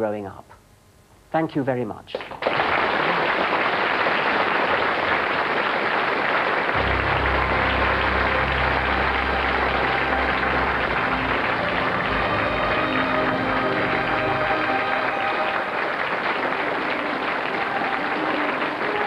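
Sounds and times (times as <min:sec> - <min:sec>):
audience applauding: 0:02.2 - 0:19.0
low sustained theme music: 0:06.8 - 0:19.0.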